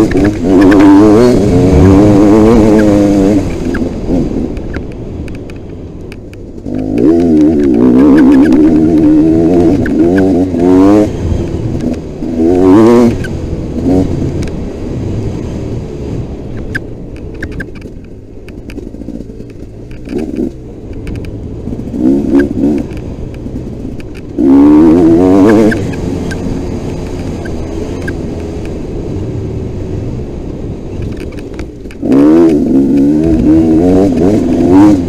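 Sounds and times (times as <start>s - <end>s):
dirt bike engine revving: 0.0s - 4.5s, 6.6s - 16.1s, 21.6s - 28.6s, 32.0s - 35.0s
sharp ticks: 16.5s - 24.4s, 25.0s - 28.8s.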